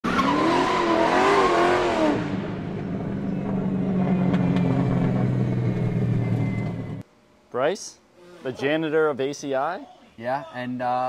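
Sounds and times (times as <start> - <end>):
car engine revving and idling: 0.0 - 7.0.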